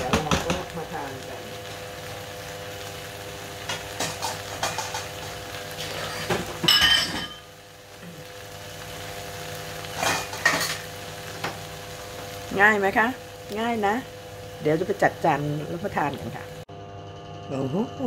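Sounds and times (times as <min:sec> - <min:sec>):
food sizzling in a frying pan: 0:00.0 - 0:18.0
utensils clinking against pans: 0:03.6 - 0:07.5, 0:09.9 - 0:11.6.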